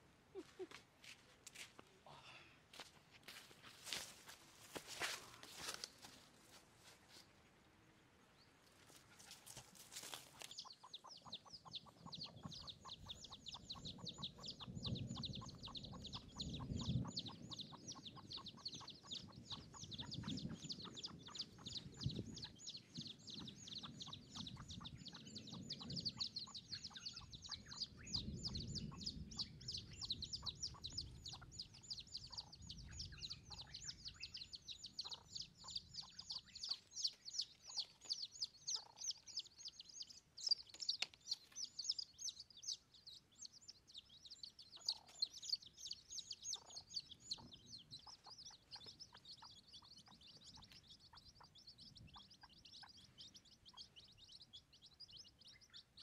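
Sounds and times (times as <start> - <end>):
chicken clucking softly: 8.9 - 22.6
high chirping: 10.0 - 56.0.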